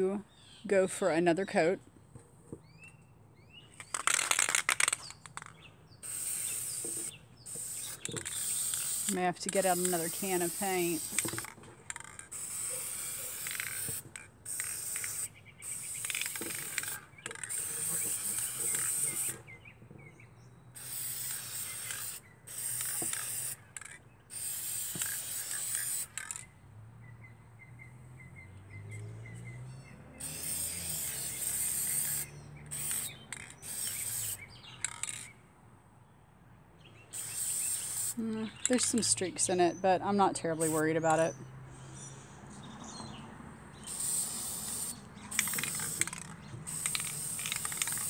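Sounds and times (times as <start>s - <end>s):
spray paint can hissing: 3.8s - 19.6s, 20.8s - 26.5s, 30.2s - 35.3s, 37.1s - 39.7s, 40.4s - 41.3s, 43.8s - 48.0s.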